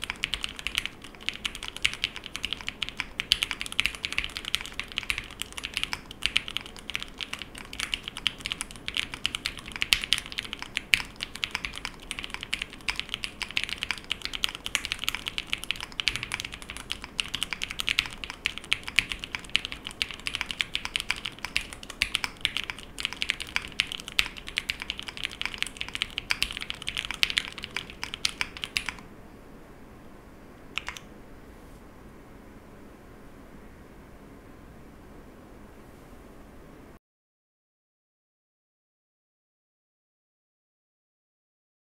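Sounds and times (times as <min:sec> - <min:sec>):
mechanical keyboard typing: 0:00.0 - 0:29.0, 0:30.8 - 0:31.1.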